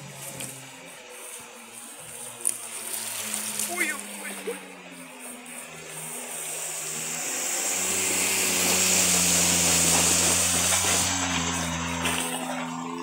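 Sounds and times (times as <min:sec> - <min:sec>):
car engine running: 0:00.0 - 0:13.0
water rushing and spraying: 0:05.6 - 0:12.5.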